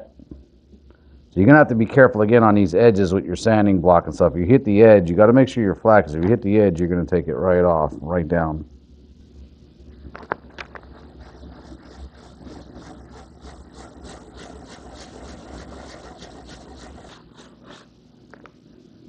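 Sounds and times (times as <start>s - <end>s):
sandpaper rubbing back and forth: 10.9s - 17.9s.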